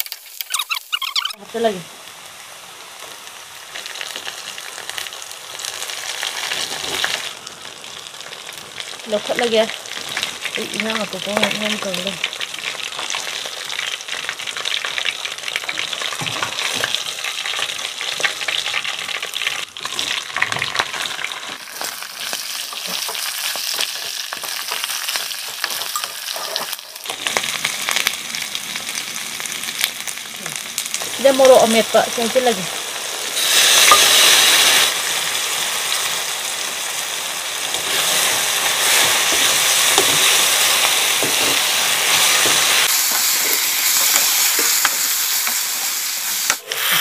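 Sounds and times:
hot oil sizzling in a wok: 0.0s - 47.0s
metal spatula scraping pan: 25.6s - 27.1s.

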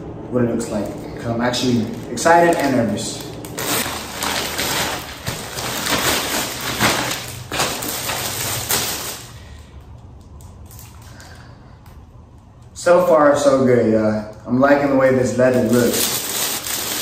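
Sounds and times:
packaging rustling: 1.6s - 9.6s, 15.4s - 17.0s
paper ripping: 1.9s - 9.3s, 15.6s - 17.0s.

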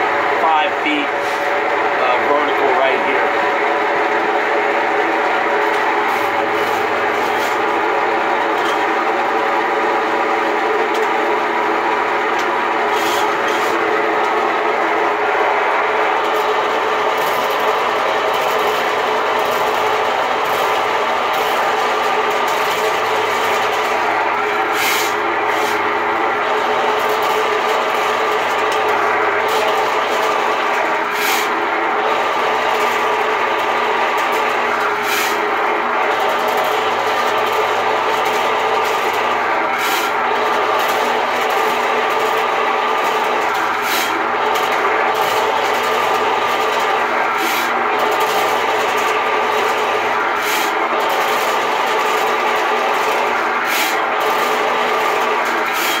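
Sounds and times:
sewer machine motor running: 0.0s - 56.0s.

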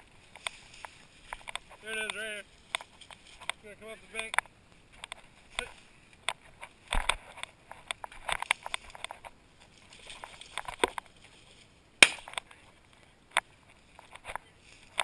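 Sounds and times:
footsteps crunching through dry brush: 0.0s - 12.8s
loud sharp crack: 12.0s - 12.4s.

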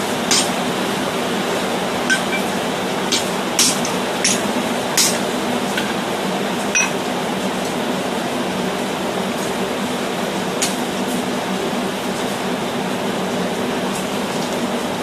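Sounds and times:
metal tools clinking on steel: 2.1s - 2.5s, 6.8s - 7.0s.

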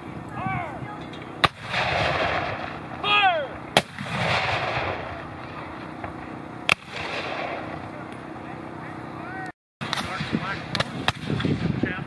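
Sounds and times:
cannon shots with rolling echo: 1.4s - 2.9s, 3.8s - 7.8s.

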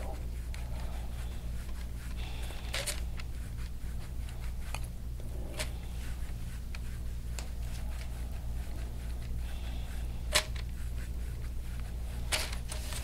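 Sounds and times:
hands rubbing skin: 0.0s - 13.0s
steady low hum: 0.0s - 13.0s.

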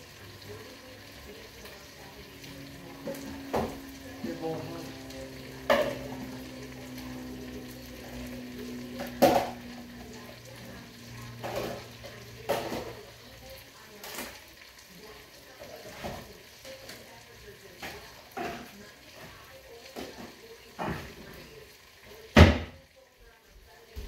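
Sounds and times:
dishes and utensils clinking: 5.4s - 7.0s, 11.3s - 13.0s.

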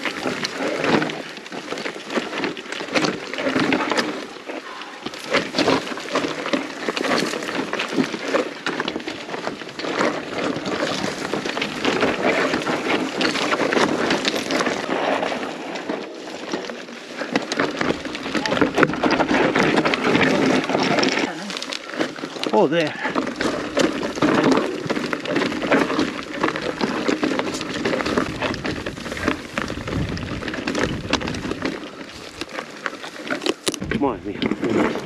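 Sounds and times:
clatter of riding over stony track: 0.0s - 35.0s
wind on microphone: 27.6s - 32.5s, 33.7s - 35.0s.

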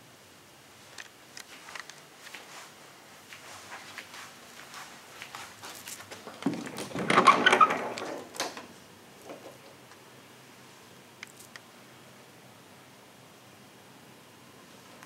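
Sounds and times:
handling clicks and rustles: 0.9s - 2.6s, 5.3s - 10.0s, 11.2s - 11.7s
door rattling and scraping: 6.1s - 9.8s.

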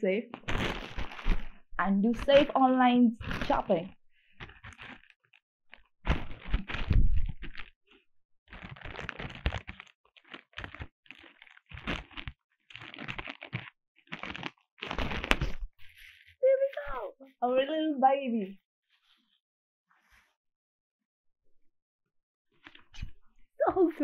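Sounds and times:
plastic mailer crinkling and tearing: 0.3s - 16.3s.

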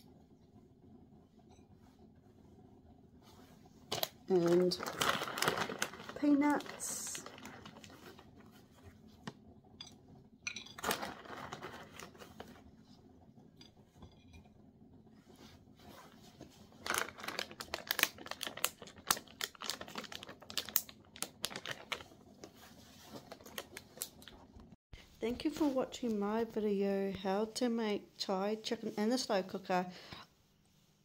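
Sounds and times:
plastic packet crinkling: 3.9s - 8.3s, 10.8s - 12.2s, 16.8s - 22.2s, 23.2s - 24.4s.

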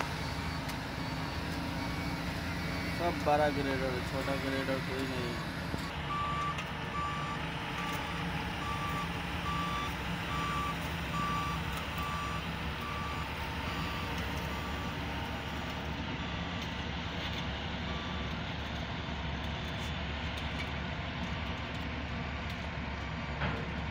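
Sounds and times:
reversing alarm beeping: 0.0s - 18.9s
diesel engine running: 0.0s - 23.9s.

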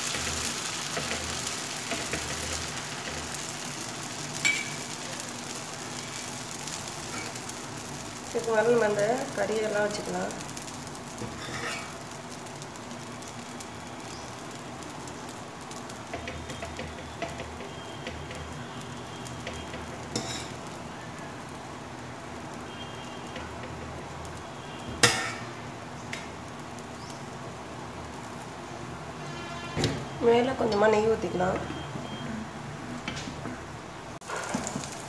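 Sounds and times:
dosa sizzling on hot iron: 0.0s - 35.0s.

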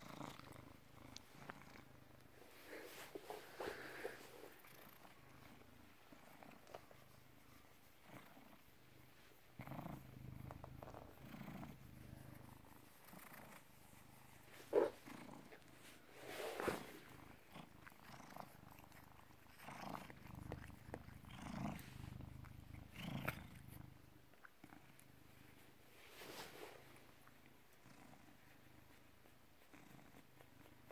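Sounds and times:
cat purring: 0.0s - 30.9s
short rustling: 15.7s - 17.1s.

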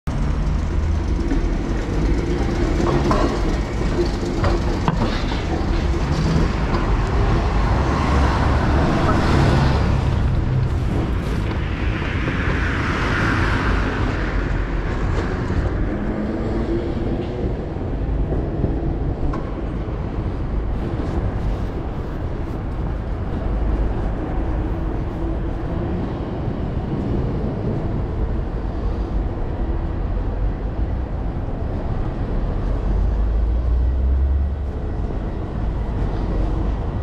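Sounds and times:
street traffic rumbling: 0.0s - 37.0s.

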